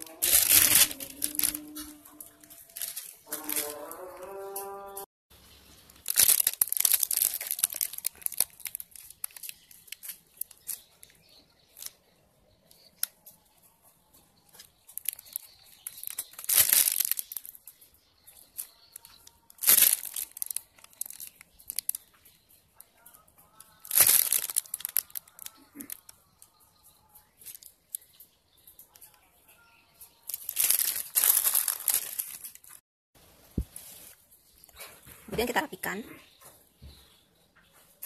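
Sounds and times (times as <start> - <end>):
plastic piping bag crinkling: 0.0 - 4.1, 5.9 - 13.2, 14.4 - 29.2, 30.1 - 32.8.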